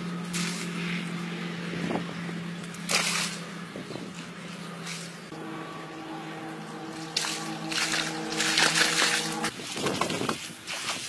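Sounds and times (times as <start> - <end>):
water splashing from swimming: 4.8 - 11.0
steady held music tones: 5.3 - 9.5.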